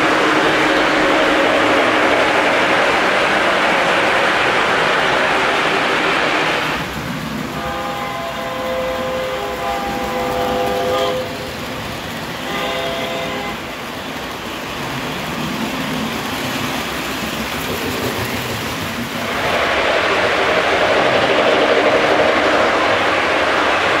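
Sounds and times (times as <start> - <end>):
model train rolling on track: 0.0 - 24.0
steam whistle blowing: 7.6 - 11.5, 12.4 - 13.7.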